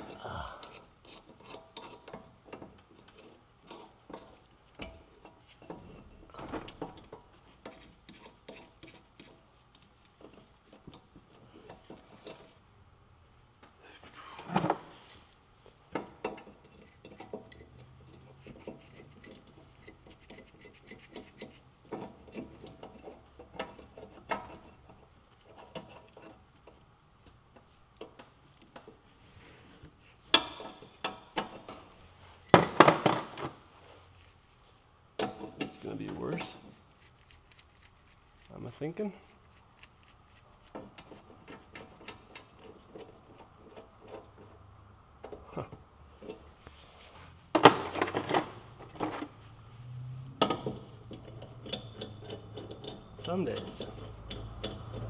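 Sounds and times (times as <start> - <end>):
metal clatter: 50.4 - 55.0.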